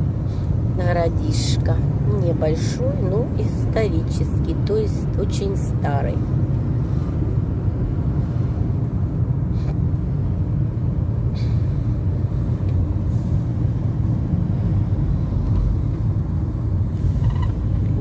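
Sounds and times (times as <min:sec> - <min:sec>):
car engine and tyres rumbling: 0:00.0 - 0:18.0.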